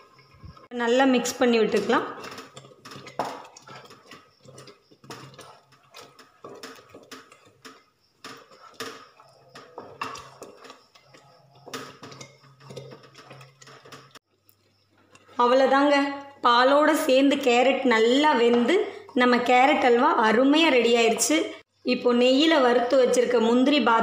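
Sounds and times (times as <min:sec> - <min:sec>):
wooden spatula scraping a pot: 0:00.0 - 0:16.2.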